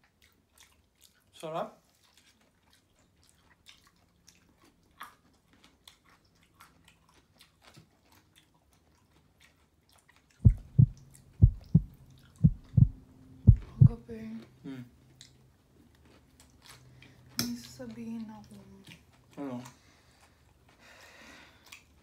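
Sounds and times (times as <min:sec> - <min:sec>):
person chewing food: 0:01.9 - 0:12.9, 0:15.1 - 0:17.1, 0:21.6 - 0:22.0
loud low thumps: 0:10.4 - 0:14.0.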